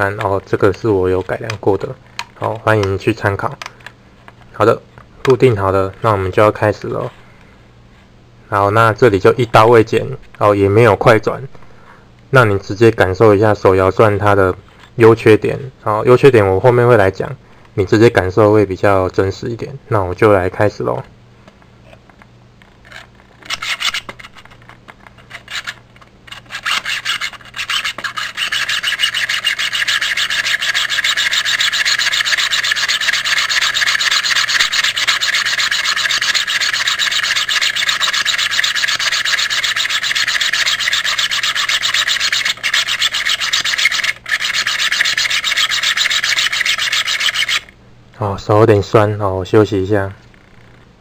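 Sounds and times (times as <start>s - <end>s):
hand drill rasping into wood: 26.4s - 47.7s.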